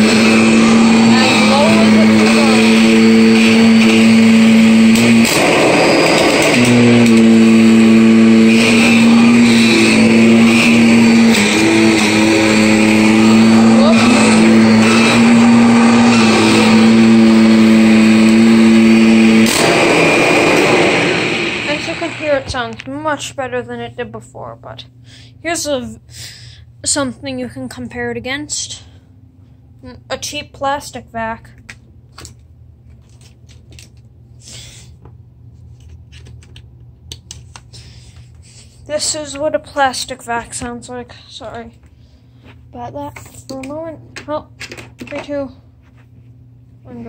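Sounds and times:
brush roller: 0:00.0 - 0:22.6
vacuum cleaner motor hum: 0:00.0 - 0:23.0.

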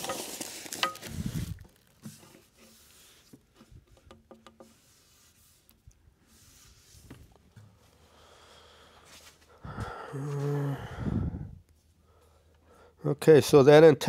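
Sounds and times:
packing creaks clicks and rustles: 0:00.0 - 0:02.5.

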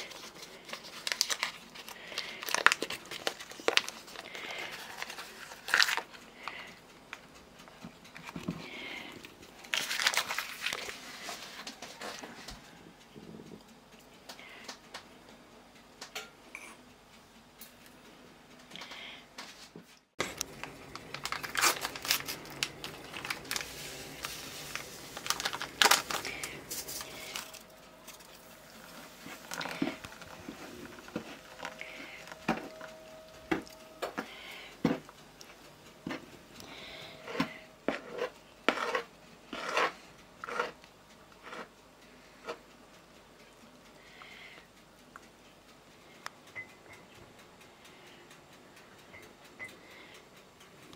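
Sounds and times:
crinkling and rustling: 0:00.0 - 0:12.8, 0:18.8 - 0:40.8.

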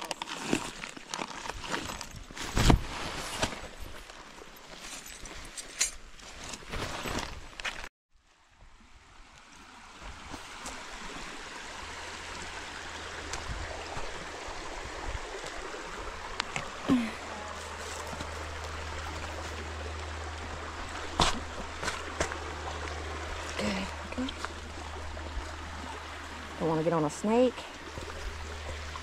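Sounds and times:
running water rushing: 0:08.2 - 0:29.0.

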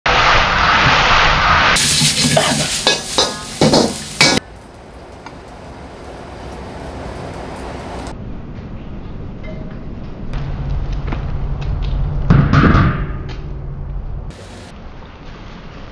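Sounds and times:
food sizzling in a wok: 0:00.1 - 0:08.1, 0:14.3 - 0:14.7
steady hiss: 0:01.6 - 0:08.1, 0:14.3 - 0:14.7
metal ladle scraping a wok: 0:01.8 - 0:04.4.

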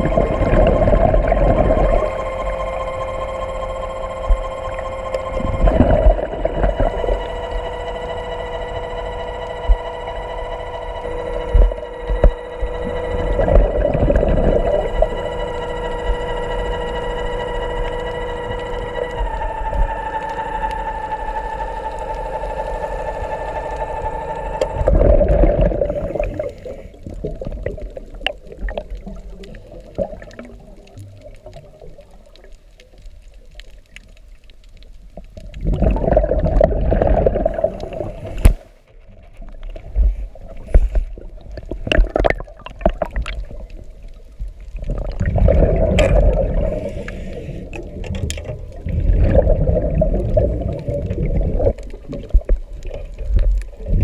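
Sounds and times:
scuba exhalation bubbles gurgling: 0:00.0 - 0:02.6, 0:05.3 - 0:07.3, 0:11.5 - 0:15.3, 0:24.7 - 0:32.5, 0:35.3 - 0:38.6, 0:39.8 - 0:54.0
electric motor whining underwater: 0:00.0 - 0:54.0.

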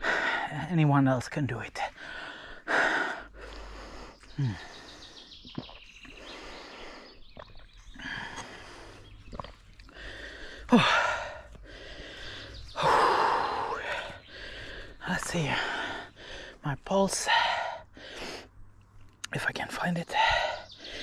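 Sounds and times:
person breathing hard: 0:00.0 - 0:00.5, 0:01.9 - 0:05.4, 0:06.1 - 0:16.6, 0:17.2 - 0:18.6, 0:20.1 - 0:21.0.

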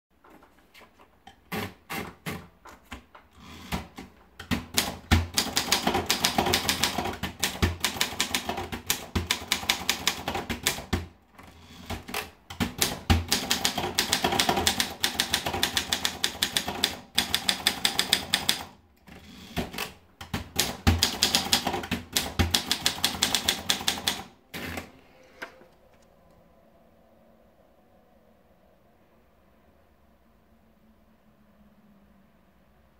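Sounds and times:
manual typewriter keystrokes: 0:03.6 - 0:24.8.

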